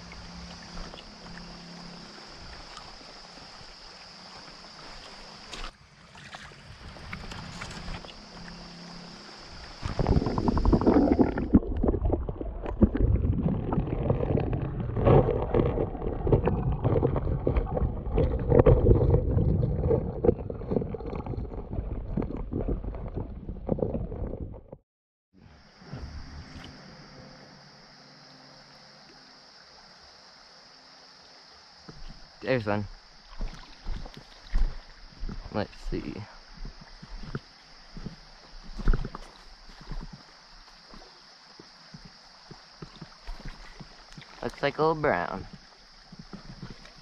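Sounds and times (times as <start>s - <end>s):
stream water rushing: 0.0s - 18.8s, 28.2s - 47.0s
underwater current gurgling: 9.6s - 24.8s.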